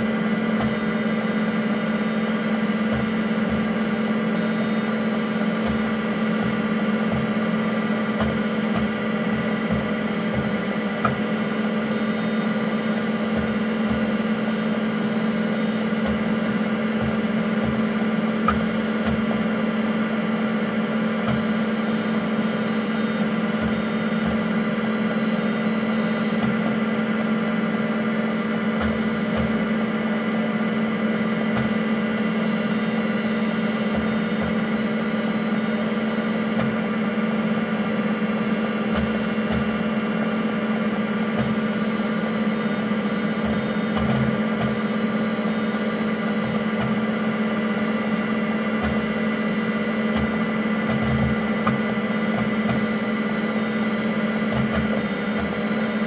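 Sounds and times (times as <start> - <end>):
computer fan and drive hum: 0.0 - 56.0
hard drive seeking thuds: 2.8 - 14.4, 15.6 - 19.5, 21.1 - 24.7, 43.0 - 44.9.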